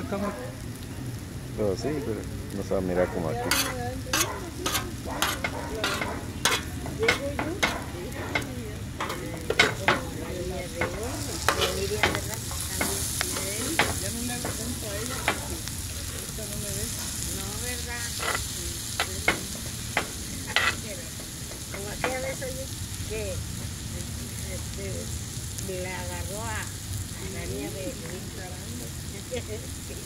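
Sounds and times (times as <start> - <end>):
food sizzling: 0.0 - 30.0
metal spoon scraping steel pan: 3.5 - 7.8, 18.1 - 18.6, 20.5 - 20.9.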